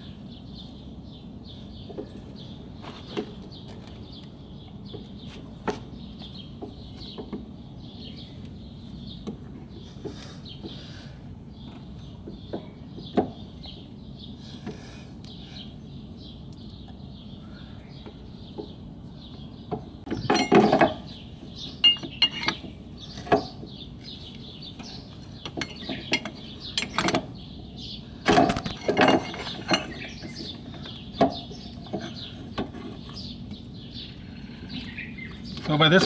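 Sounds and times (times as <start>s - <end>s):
birds chirping: 0.0s - 36.0s
metal clinks and knocks: 20.1s - 21.2s, 21.8s - 24.2s, 24.8s - 27.4s, 28.2s - 33.2s.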